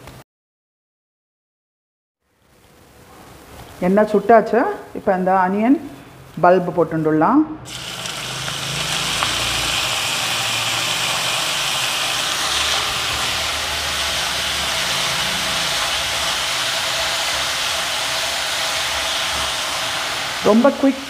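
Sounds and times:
onions sizzling in hot oil: 0:07.7 - 0:21.0.

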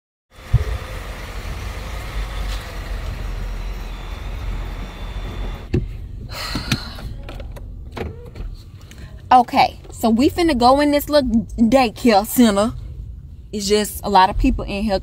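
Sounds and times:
outdoor noise: 0:00.3 - 0:15.0
car engine rumbling: 0:00.4 - 0:15.0
sharp knocks inside car: 0:00.5 - 0:01.0
thump: 0:00.5 - 0:01.0.

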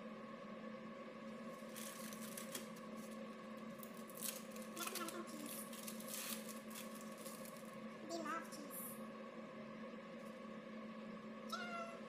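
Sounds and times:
steady low hum: 0:00.0 - 0:12.0
plastic wrapping crinkling: 0:01.4 - 0:07.8.

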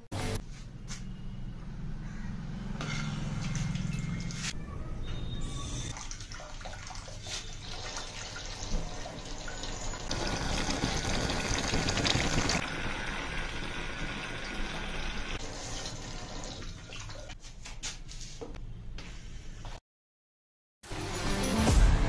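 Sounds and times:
water jet splashing and trickling: 0:05.9 - 0:12.9.

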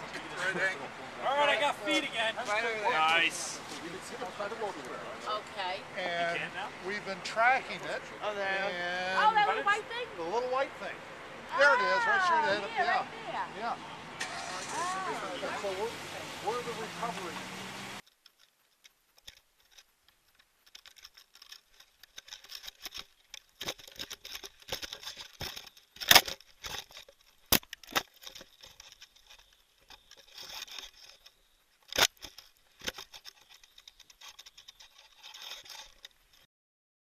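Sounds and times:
crackling and rustling handling noise: 0:18.0 - 0:36.5.

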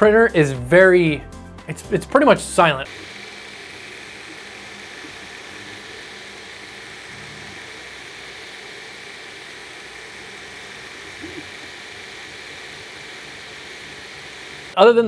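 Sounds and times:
printer cooling fans whirring: 0:02.9 - 0:14.8.

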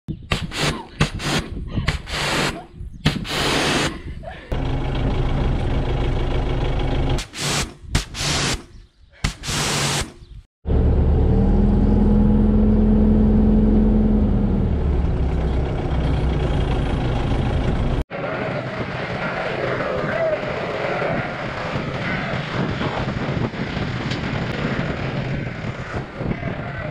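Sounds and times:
diesel engine running: 0:04.5 - 0:07.3, 0:10.7 - 0:25.5
short bursts of hiss: 0:07.2 - 0:08.7, 0:09.3 - 0:10.2.

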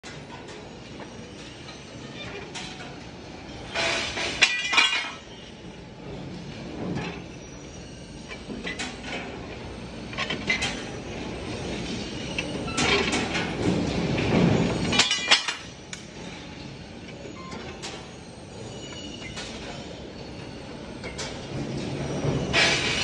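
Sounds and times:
metal clanks and rattles: 0:00.0 - 0:05.4, 0:11.7 - 0:16.5, 0:21.0 - 0:23.0.

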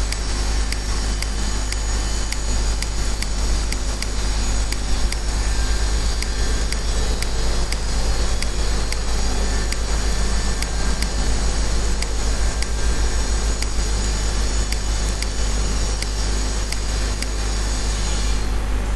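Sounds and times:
faint high ticks: 0:00.0 - 0:05.3
background hum and hiss: 0:00.0 - 0:18.9.

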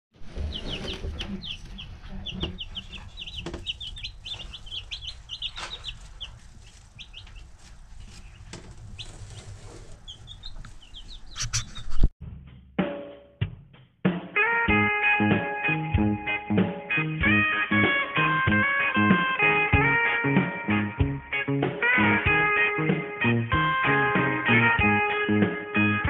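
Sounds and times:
chicks peeping: 0:00.2 - 0:12.1.

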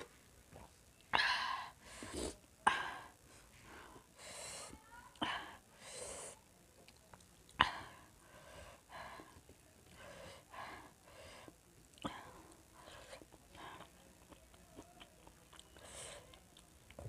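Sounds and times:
sharp breaths: 0:05.7 - 0:06.4.

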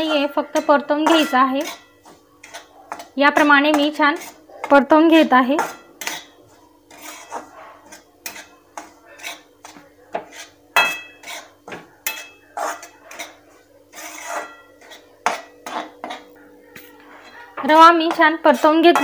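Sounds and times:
metal spatula scraping metal pan: 0:00.0 - 0:16.3, 0:17.2 - 0:19.0.

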